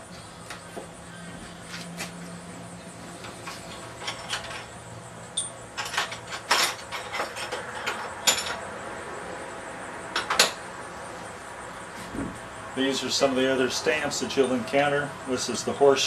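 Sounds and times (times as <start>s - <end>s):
metal tools clinking on bench: 3.4s - 4.7s, 5.4s - 8.6s.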